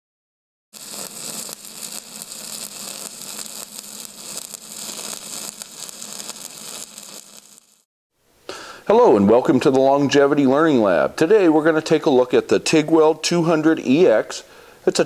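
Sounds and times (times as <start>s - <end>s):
welding arc crackling and hissing: 0.7s - 7.9s.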